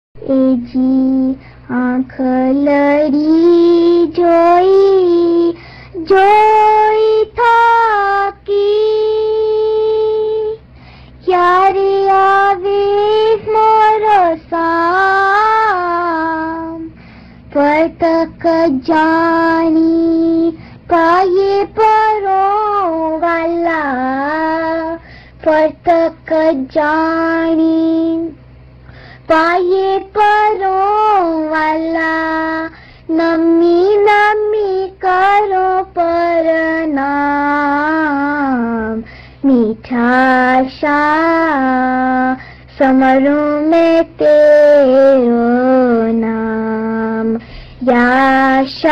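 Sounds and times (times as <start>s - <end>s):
person singing a hymn unaccompanied: 11.2s - 28.4s, 29.2s - 48.9s.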